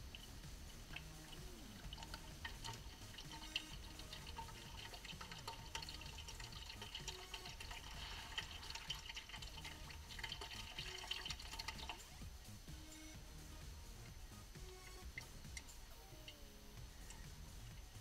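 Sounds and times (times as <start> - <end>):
oil trickling into plastic bottle: 0.1 - 12.1.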